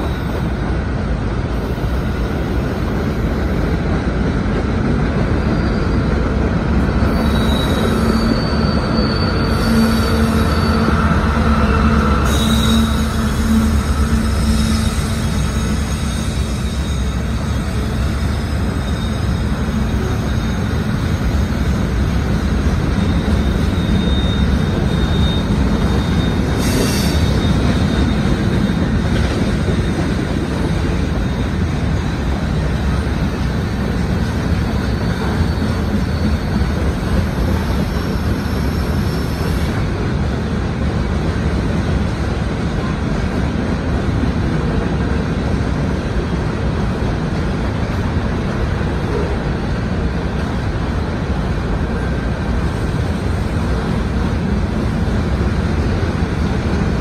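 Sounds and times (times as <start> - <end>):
train wheels rumbling on rail: 0.0 - 57.0
thin wheel squeal: 7.1 - 21.0, 23.0 - 28.8.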